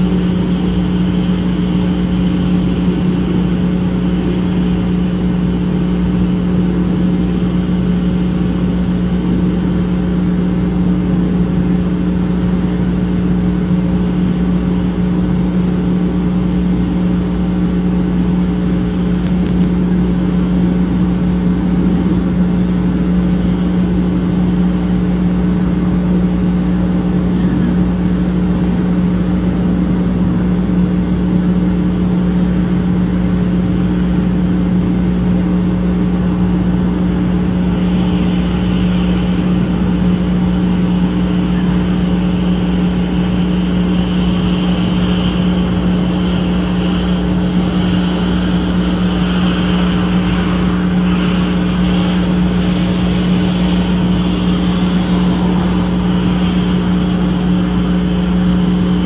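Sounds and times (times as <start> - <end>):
steady low hum: 0.0 - 59.0
hiss: 36.2 - 59.0.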